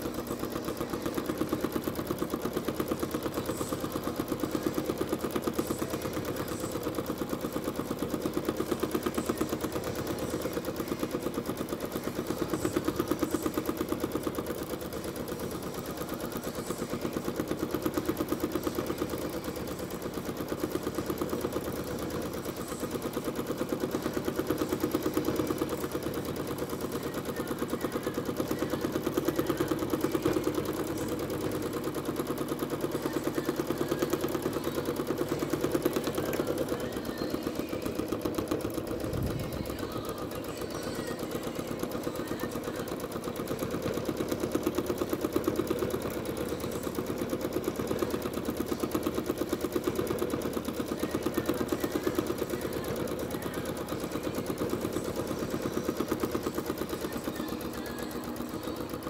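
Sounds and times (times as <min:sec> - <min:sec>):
sewing machine needle clatter: 0:00.0 - 0:59.0.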